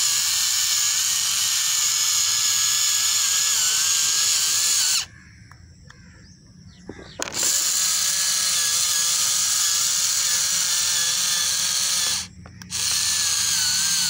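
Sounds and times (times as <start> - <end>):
small electric motor whining: 0.0 - 5.1, 6.9 - 14.0.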